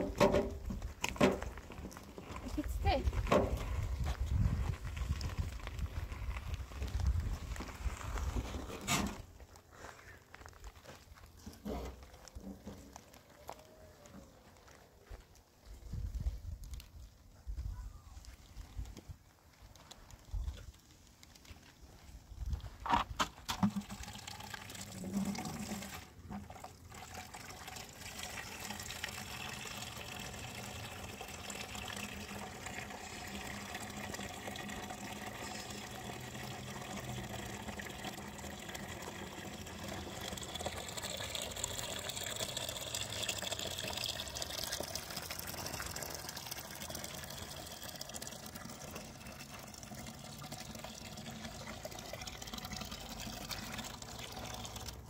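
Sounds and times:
water running: 23.8s - 55.0s.

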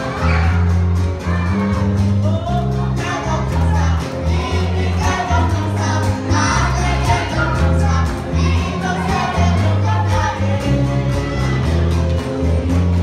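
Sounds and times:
band playing: 0.0s - 13.0s
loud bass line: 0.0s - 13.0s
congregation singing: 2.7s - 11.8s.

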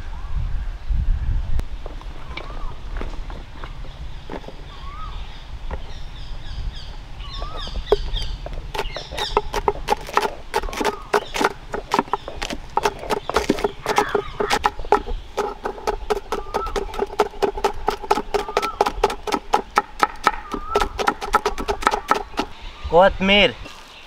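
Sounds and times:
knife chopping on wooden board: 8.7s - 22.5s.

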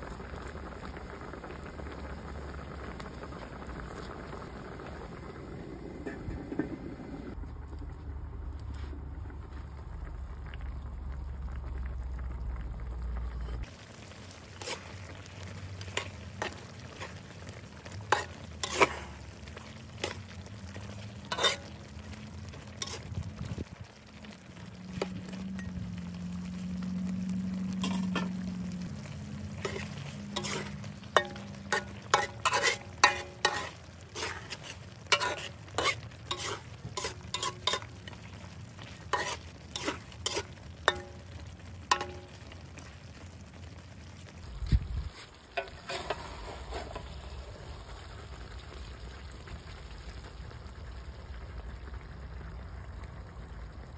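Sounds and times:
sauce simmering: 0.0s - 53.9s
wooden spatula scraping metal wok: 14.3s - 23.6s, 27.7s - 42.9s, 44.6s - 47.4s.

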